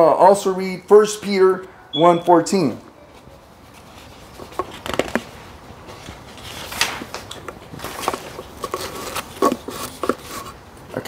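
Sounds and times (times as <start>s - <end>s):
paper rustle: 3.1s - 10.6s.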